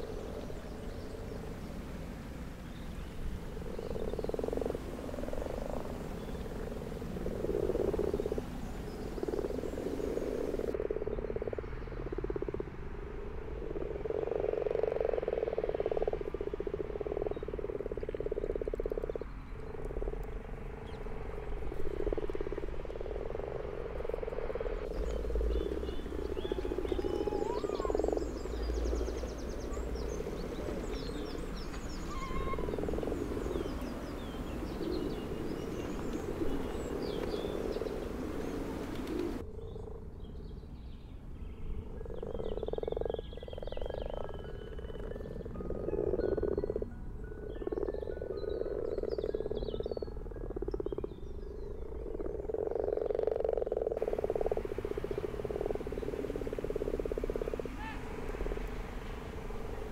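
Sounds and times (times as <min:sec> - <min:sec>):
background hiss: 0:00.0 - 0:10.8, 0:19.9 - 0:39.4, 0:53.8 - 0:59.9
frogs croaking: 0:00.0 - 0:40.5, 0:41.7 - 0:59.9
songbirds chirping: 0:00.0 - 0:59.9.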